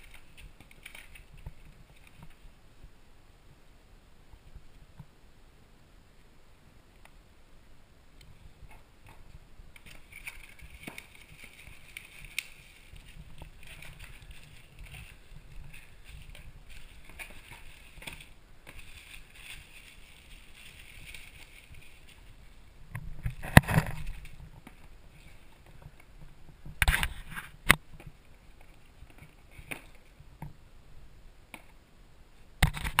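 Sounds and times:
bubble wrap rustling: 0.0s - 2.5s, 9.1s - 30.2s
cardboard and plastic packaging crackling: 0.0s - 2.5s, 8.7s - 30.2s.

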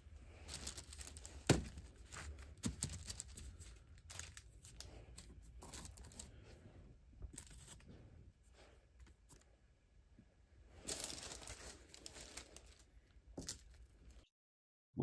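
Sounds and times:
paper crinkling: 0.3s - 6.4s, 7.2s - 8.0s, 10.8s - 14.2s.

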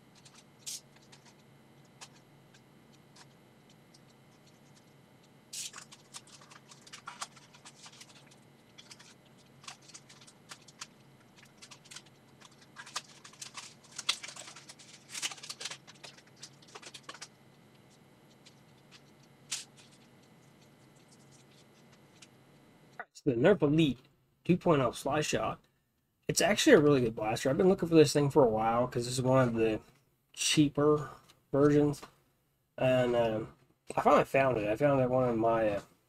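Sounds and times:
packaging rustling and scratching: 0.0s - 22.4s.

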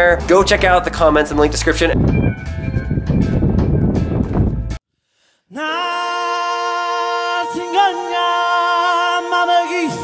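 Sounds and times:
a cappella held vocal chord: 5.5s - 10.0s.

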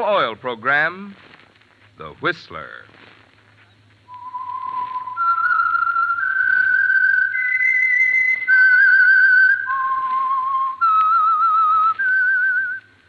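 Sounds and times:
person whistling a tune: 4.1s - 12.9s.

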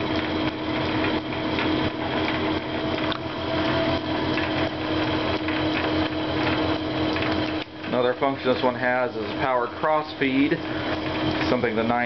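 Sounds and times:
metal lathe humming: 0.0s - 12.0s.

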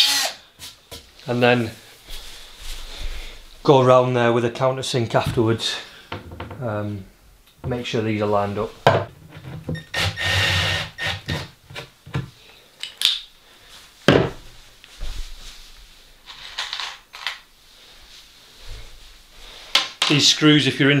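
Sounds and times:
drill driving screw into wood: 0.0s - 0.4s, 9.8s - 11.5s.

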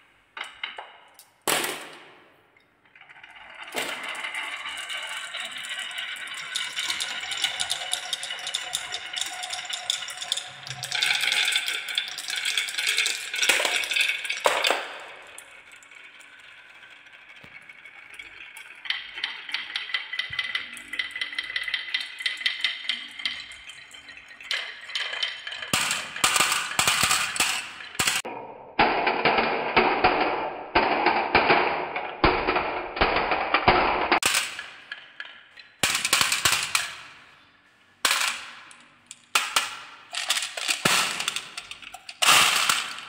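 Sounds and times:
marbles clacking together: 3.0s - 28.3s, 38.0s - 43.0s
marbles rattling down wooden track: 3.0s - 28.3s, 38.0s - 43.0s.

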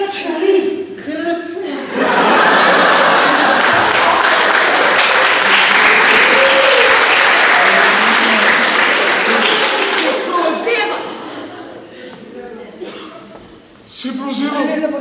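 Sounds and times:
audience applauding: 2.4s - 10.7s.

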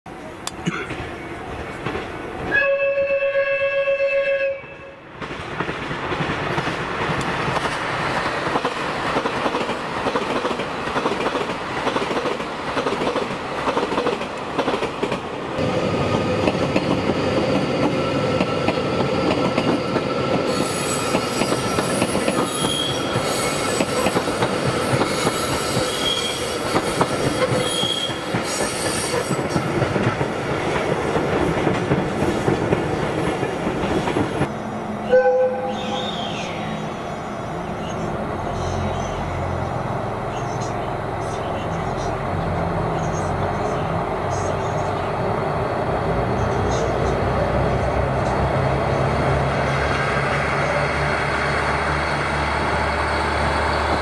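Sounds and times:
train running past: 0.1s - 54.0s
train horn: 2.5s - 5.0s, 27.6s - 29.4s, 35.0s - 36.3s.

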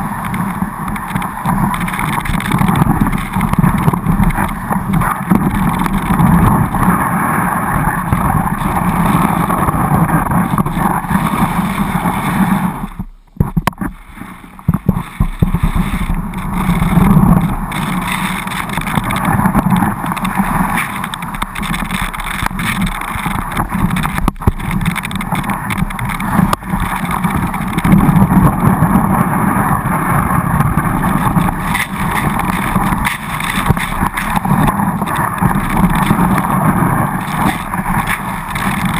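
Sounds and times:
skis sliding through snow: 0.0s - 38.9s
wind buffeting microphone: 0.0s - 38.9s.

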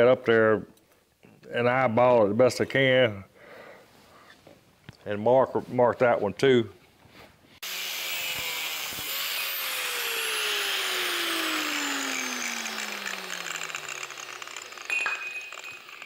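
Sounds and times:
angle grinder grinding metal: 7.6s - 16.0s
short metallic ring: 14.9s - 16.0s.

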